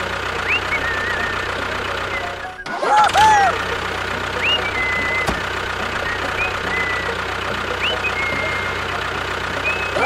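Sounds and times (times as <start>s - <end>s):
tractor engine chugging: 0.0s - 10.0s
short rising whistles: 0.4s - 2.8s, 4.4s - 8.9s, 9.6s - 10.0s.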